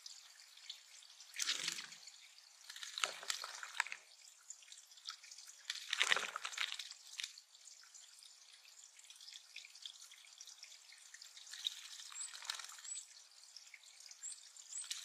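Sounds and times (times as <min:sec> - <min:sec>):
water trickling and dripping: 0:00.0 - 0:15.0
bird splashing in water: 0:02.7 - 0:04.0, 0:05.7 - 0:06.9.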